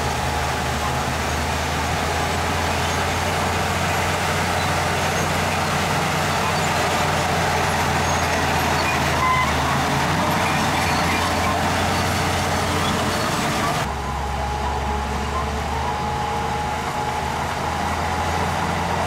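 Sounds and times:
heavy diesel engine running: 0:00.0 - 0:19.0.

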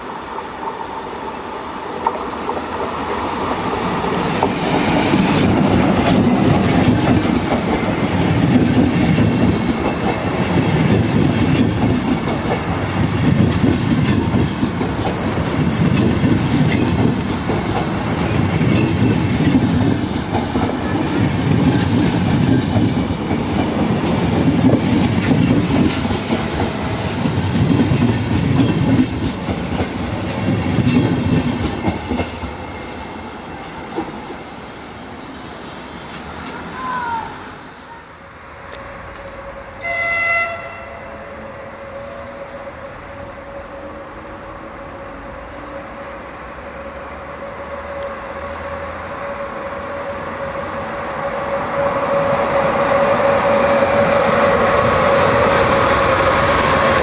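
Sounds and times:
train wheels rumbling on rail: 0:00.0 - 0:57.0
wheels squealing: 0:03.8 - 0:06.4, 0:14.4 - 0:19.1, 0:34.5 - 0:37.9.

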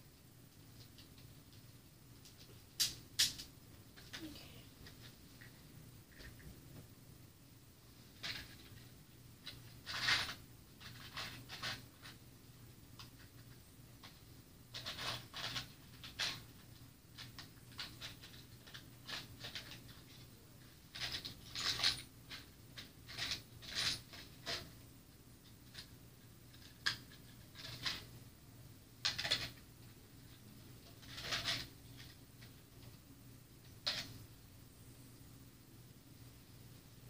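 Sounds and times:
rustles and light clicks: 0:00.1 - 0:06.9.

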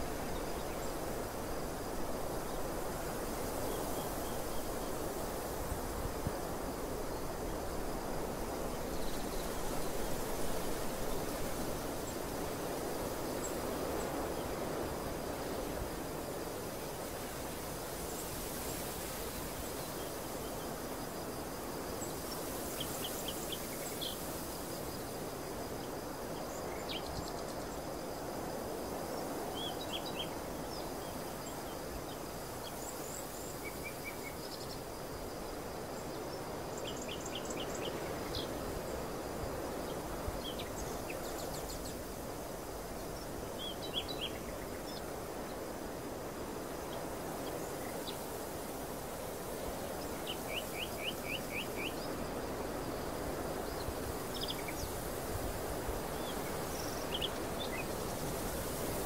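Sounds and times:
steady hiss: 0:00.0 - 0:59.0.

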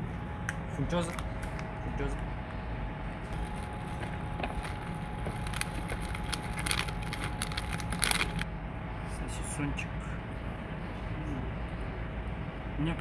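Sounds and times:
plastic sachet crinkling: 0:03.4 - 0:08.4.

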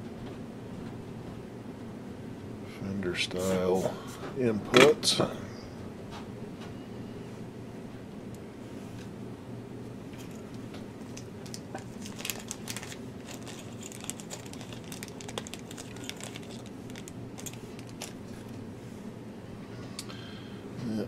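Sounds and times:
plastic bag crinkling: 0:11.0 - 0:18.5.

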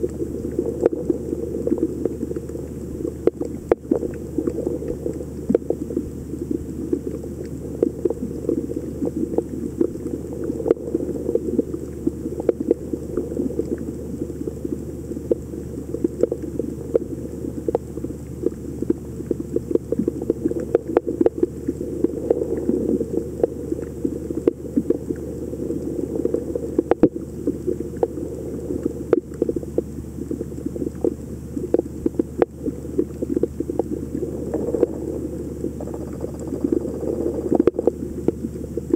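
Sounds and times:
muffled underwater rumble: 0:00.0 - 0:38.9
sharp clicks and crackles: 0:23.4 - 0:38.9.

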